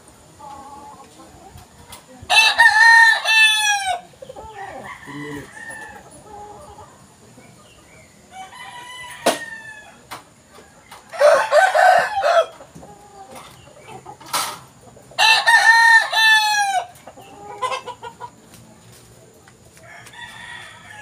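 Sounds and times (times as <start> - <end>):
roosters crowing: 2.3 - 7.2, 7.8 - 18.4, 19.7 - 21.0.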